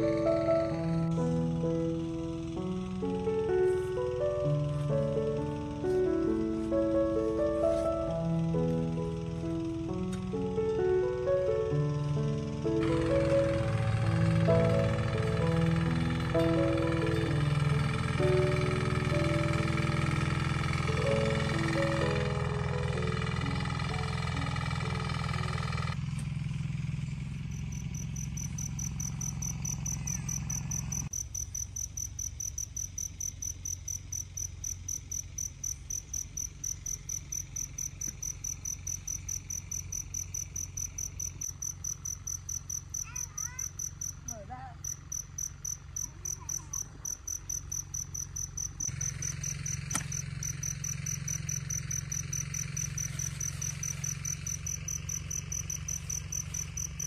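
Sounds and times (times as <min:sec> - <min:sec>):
low steady rumble: 0:00.0 - 0:57.0
faint rising chirps: 0:26.9 - 0:57.0
insect trilling: 0:27.4 - 0:57.0.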